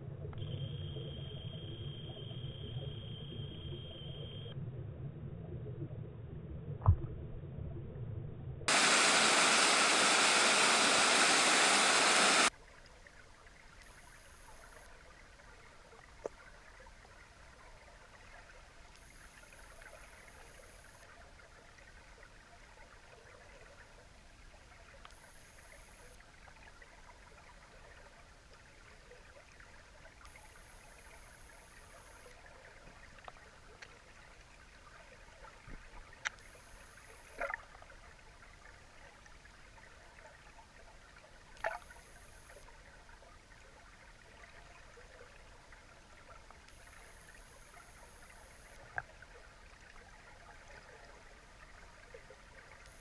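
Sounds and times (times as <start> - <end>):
underwater ambience: 0.0 - 53.0
high steady whine: 0.4 - 4.6, 8.7 - 12.5, 13.8 - 14.9, 19.0 - 21.0, 25.1 - 26.2, 30.3 - 32.3, 36.4 - 37.5, 41.6 - 42.6, 46.7 - 48.8
faint click: 13.8 - 14.9, 18.9 - 21.1, 25.0 - 26.2, 30.2 - 32.4, 33.2 - 34.0, 35.7 - 37.6, 41.6 - 42.7, 46.5 - 49.1.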